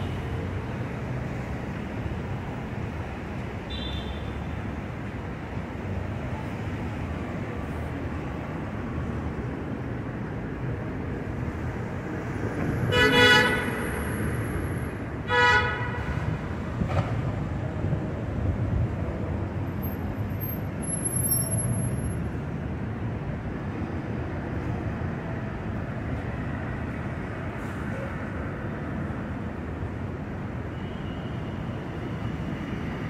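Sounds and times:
city street traffic: 0:00.0 - 0:33.0
vehicle horn honking: 0:12.9 - 0:13.7, 0:15.3 - 0:16.0.

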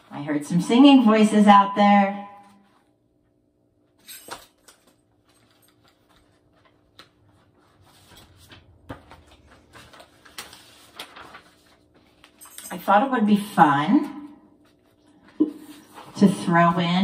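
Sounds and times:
paper sheets rustling: 0:04.6 - 0:13.1, 0:14.6 - 0:16.8.

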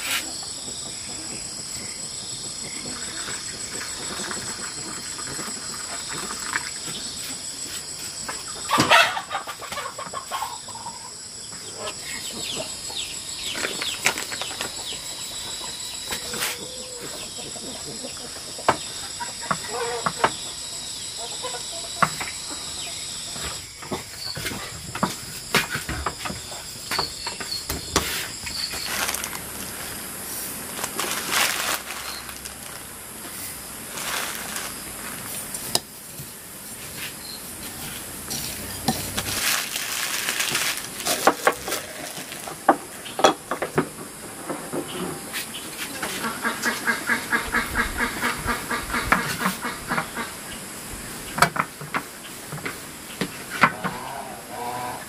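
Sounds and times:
insects chirring: 0:00.0 - 0:55.0
chickens clucking: 0:07.8 - 0:29.1, 0:36.9 - 0:50.6.

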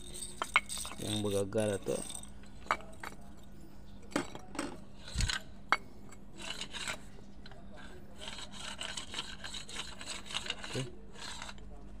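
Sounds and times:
small clicks and scrapes: 0:04.6 - 0:12.0.

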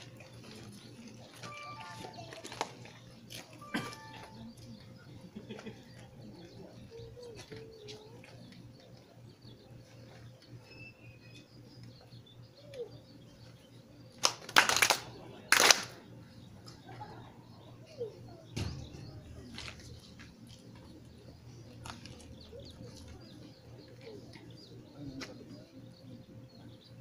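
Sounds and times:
crowd clapping in unison: 0:14.2 - 0:16.0.

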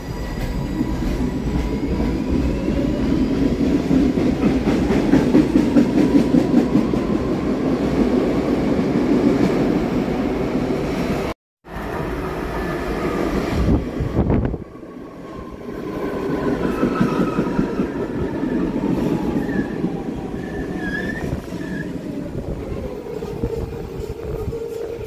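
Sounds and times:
train wheels rumbling: 0:00.0 - 0:08.2
wheel squeals: 0:20.4 - 0:22.0.

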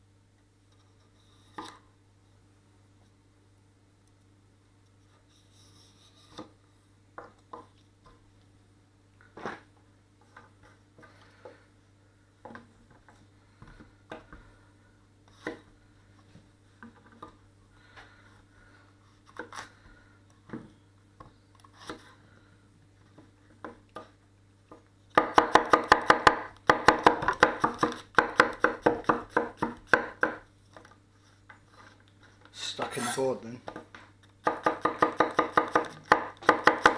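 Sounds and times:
knife chopping on wooden board: 0:25.1 - 0:30.4, 0:34.4 - 0:36.9.

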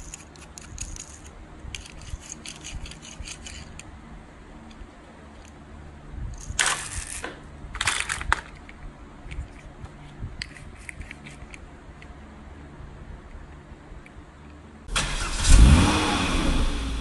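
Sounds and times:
toys rattling in plastic basket: 0:06.5 - 0:08.6
plastic toy clicks: 0:06.6 - 0:08.7.

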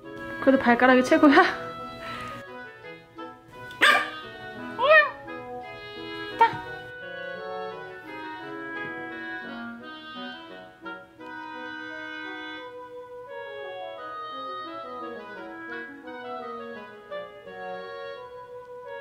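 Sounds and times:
organ-like keyboard music: 0:01.3 - 0:19.0
puppy barking: 0:03.8 - 0:05.2.

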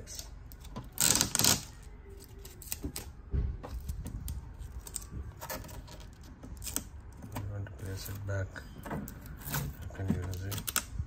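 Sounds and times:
tape and plastic film peeling: 0:00.0 - 0:08.2, 0:09.0 - 0:11.0
fingers clicking on plastic: 0:08.8 - 0:11.0.

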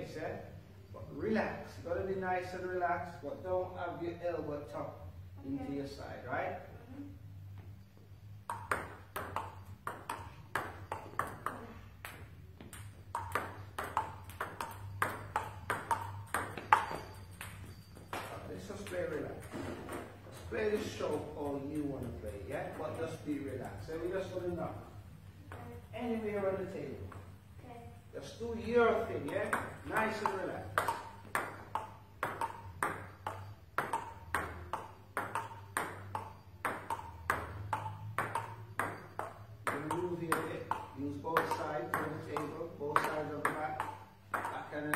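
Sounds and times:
table tennis ball knocking: 0:08.3 - 0:24.8, 0:28.6 - 0:44.9.

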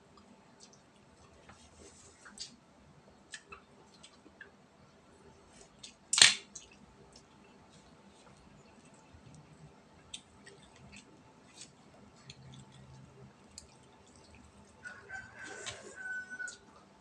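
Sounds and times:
faint clicks of eating: 0:00.1 - 0:02.6, 0:03.3 - 0:04.6, 0:05.6 - 0:14.8, 0:15.4 - 0:16.9
rooster crowing: 0:14.8 - 0:16.8.

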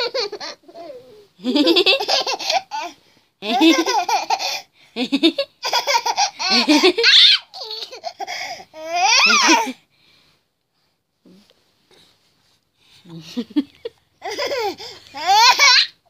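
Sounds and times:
baby laughing: 0:00.0 - 0:04.7, 0:05.3 - 0:09.8, 0:14.2 - 0:16.0.

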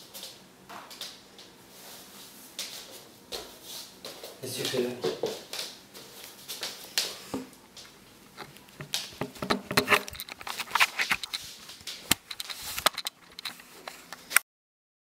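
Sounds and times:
objects being handled clicks and taps: 0:08.4 - 0:14.4.

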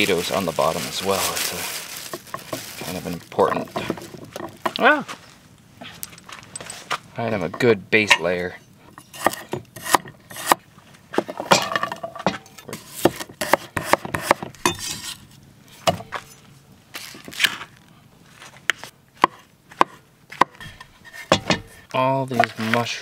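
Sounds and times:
cleaver chopping on wooden board: 0:09.2 - 0:10.6, 0:12.3 - 0:14.9, 0:19.2 - 0:21.8.

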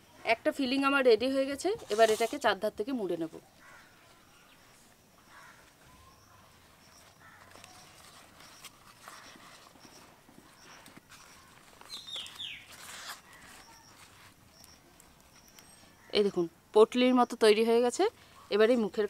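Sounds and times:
leaf rustling and crinkling: 0:03.3 - 0:16.0
bird chirps: 0:03.7 - 0:16.2.

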